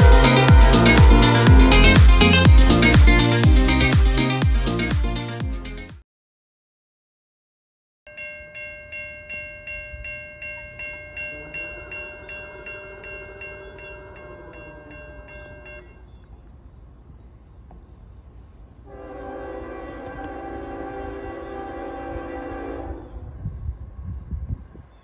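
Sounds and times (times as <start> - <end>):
crossing bell ringing: 0.0 - 3.4, 8.1 - 16.1
low rumble: 0.0 - 3.9.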